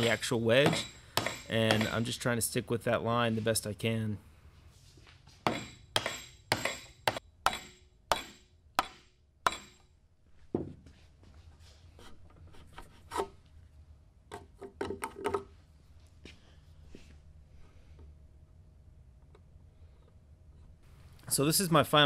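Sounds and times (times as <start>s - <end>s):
mallet striking chisel: 0.0s - 2.1s, 5.4s - 9.9s
chisel scraping wood: 11.9s - 13.4s.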